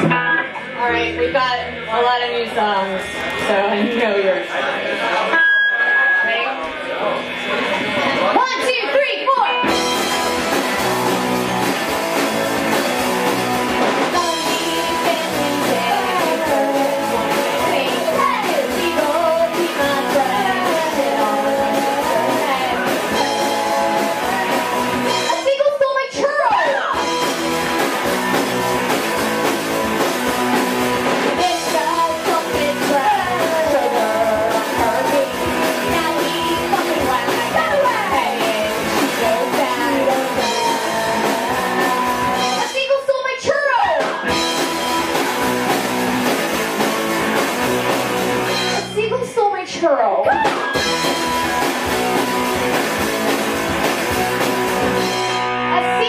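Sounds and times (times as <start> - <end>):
drum kit: 0.0 - 4.1, 9.5 - 56.0
electric bass: 0.0 - 4.2, 9.6 - 25.6, 26.8 - 42.8, 43.7 - 56.0
electric guitars: 0.0 - 56.0
women singing: 14.2 - 25.5, 31.4 - 44.2.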